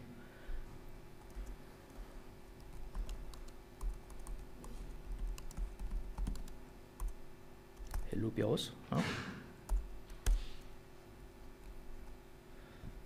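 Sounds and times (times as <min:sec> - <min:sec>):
faint steady hum: 0:00.0 - 0:13.0
laptop keyboard typing: 0:01.2 - 0:02.0, 0:02.6 - 0:07.2, 0:07.8 - 0:08.1, 0:09.7 - 0:10.4.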